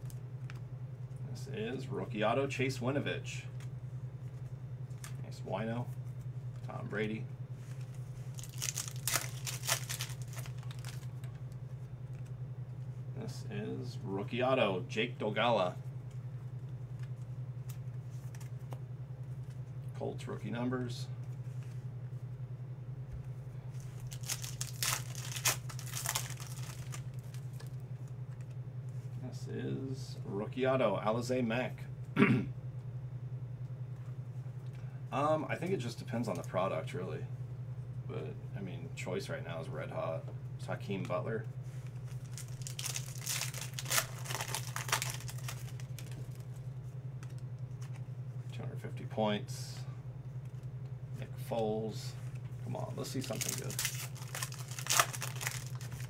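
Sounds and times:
steady low hum: 0.0 - 56.0
cards rustling: 7.6 - 11.4, 23.7 - 28.4, 41.7 - 48.0, 52.8 - 56.0
foil wrapper tearing and crinkling: 8.3 - 11.1, 23.9 - 27.7, 42.1 - 46.4, 53.1 - 56.0.

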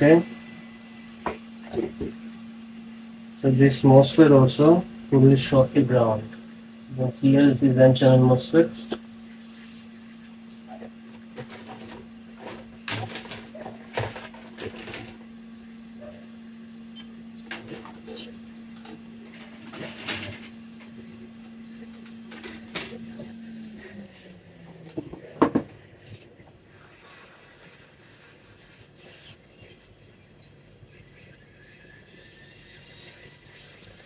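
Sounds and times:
small motor humming: 0.0 - 25.0.

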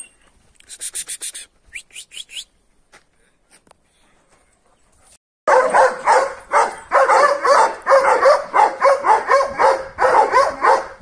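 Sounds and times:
dog barking rapidly: 5.5 - 11.0.

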